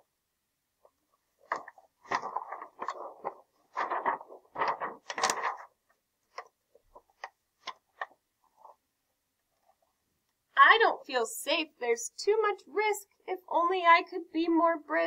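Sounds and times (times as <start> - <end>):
book pages turning: 1.4 - 8.8.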